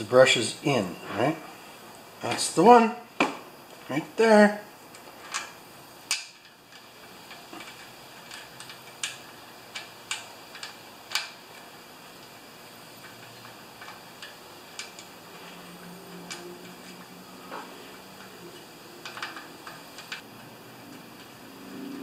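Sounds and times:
metal parts clicking: 4.9s - 12.4s, 13.0s - 17.2s, 18.2s - 20.2s.

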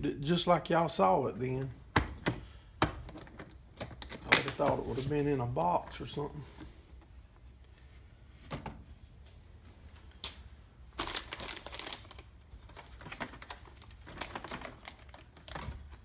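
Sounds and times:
plastic bag crinkling: 10.9s - 16.0s.

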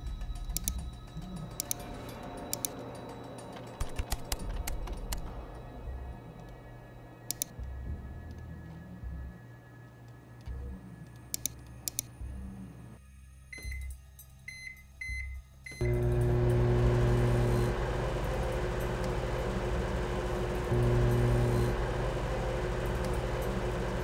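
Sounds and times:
microwave oven humming: 15.7s - 24.0s.

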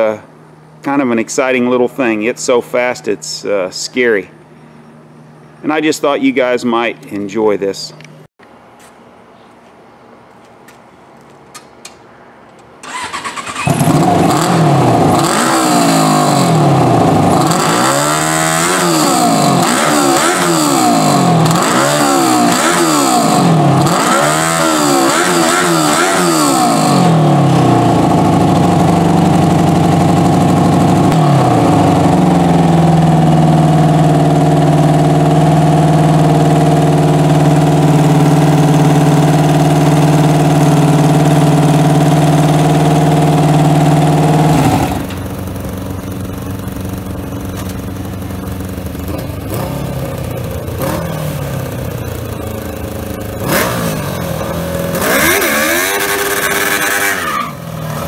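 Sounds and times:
lawn tractor engine idling: 12.8s - 15.1s, 27.2s - 53.4s
engine cranking: 12.8s - 16.7s
lawn tractor engine revving: 12.8s - 58.0s.

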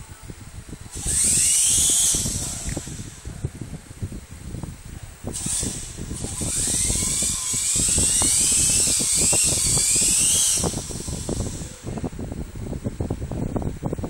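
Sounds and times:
toy helicopter motors whining: 0.9s - 3.3s, 5.3s - 11.9s.

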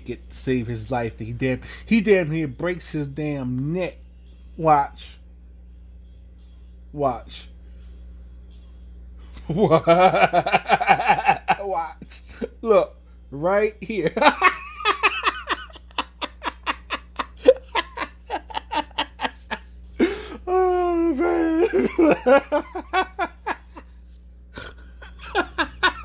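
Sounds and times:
man laughing hard: 9.5s - 12.5s, 14.0s - 23.8s, 24.6s - 26.0s.

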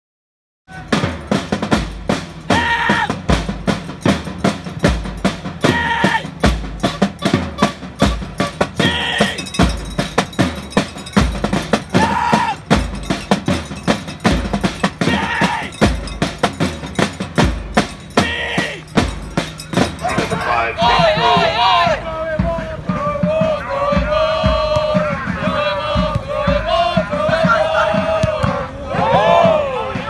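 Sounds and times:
bass drum thumps: 22.4s - 29.6s.

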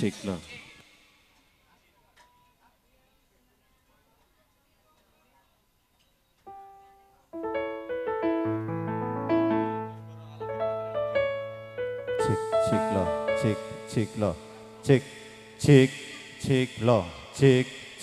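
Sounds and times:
electronic keyboard chords: 6.5s - 16.7s
held bass notes: 7.4s - 17.6s.

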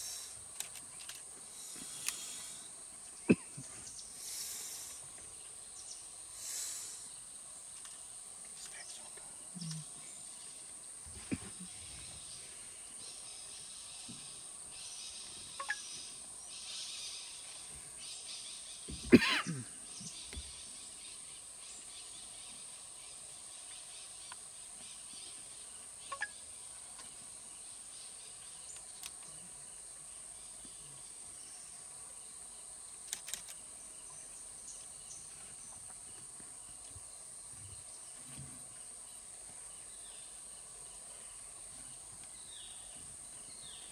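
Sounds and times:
faint clicks: 0.5s - 1.3s, 33.0s - 33.6s.

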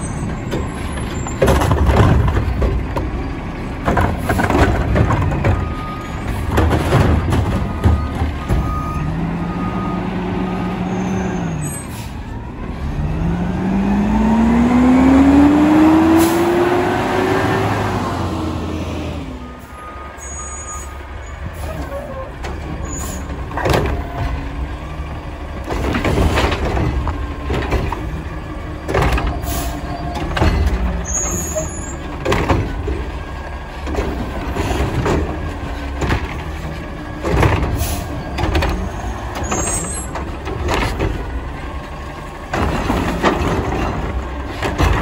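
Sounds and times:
carts banging and clunking: 0.0s - 9.6s, 21.5s - 45.0s.

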